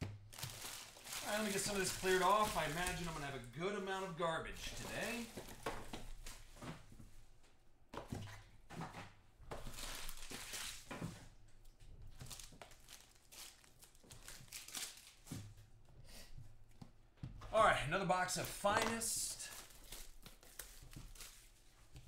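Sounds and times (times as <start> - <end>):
packaging crinkling and rustling: 0.0 - 3.4, 4.5 - 6.5, 9.6 - 11.1, 12.1 - 15.3, 18.2 - 22.0.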